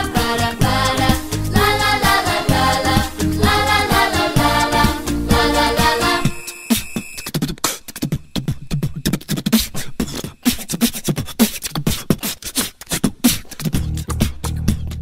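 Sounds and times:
bass line: 0.0s - 6.4s, 13.8s - 15.0s
beatbox music: 0.0s - 15.0s.

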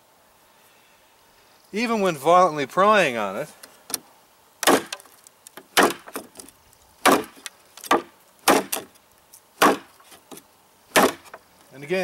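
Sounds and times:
knife striking wood knot: 4.6s - 5.1s, 5.7s - 6.3s, 7.0s - 8.9s, 9.6s - 9.9s, 11.0s - 11.4s.

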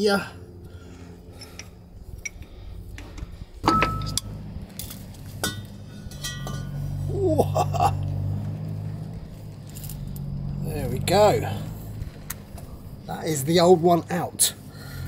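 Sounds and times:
steady low hum: 0.0s - 15.0s
sharp metal clank: 3.6s - 4.4s, 5.4s - 6.8s
spanner metal clinks: 3.6s - 6.9s.

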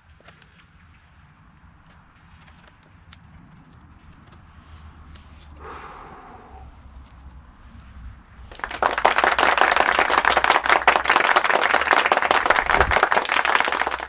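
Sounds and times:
many hands clapping: 8.5s - 14.0s.

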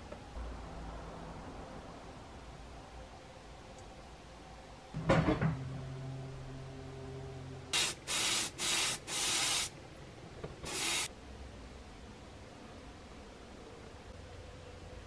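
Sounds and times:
pressurised spray hissing: 7.8s - 9.7s, 10.6s - 11.1s.

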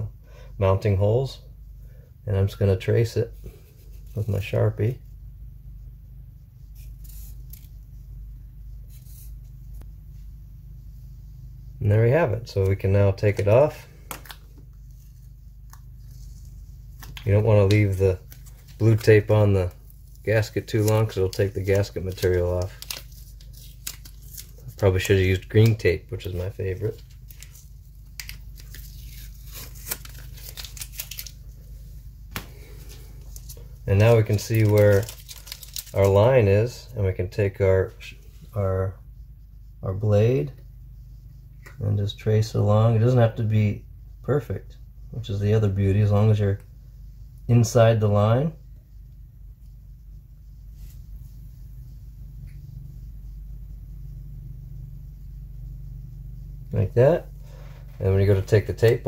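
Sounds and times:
steady low hum: 0.0s - 59.0s
tape peeling and crinkling: 6.8s - 7.8s, 14.1s - 31.6s, 32.3s - 36.2s.

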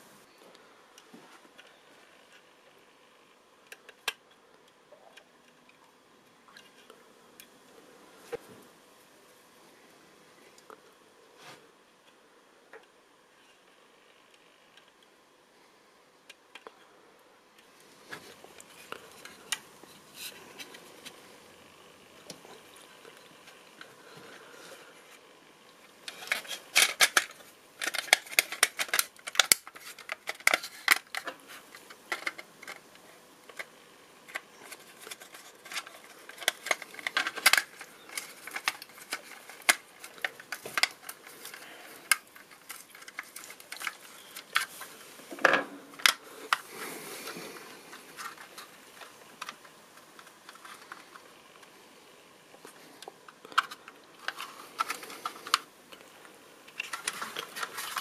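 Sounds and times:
plastic parts clicking: 26.0s - 33.7s, 34.3s - 46.7s, 52.6s - 56.0s, 56.7s - 58.0s.

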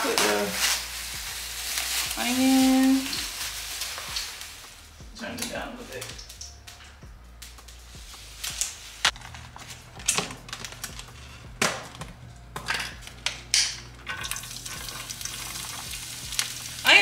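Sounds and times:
onion sizzling in pan: 0.0s - 6.8s, 13.2s - 17.0s
hot oil crackling and popping: 0.0s - 17.0s.

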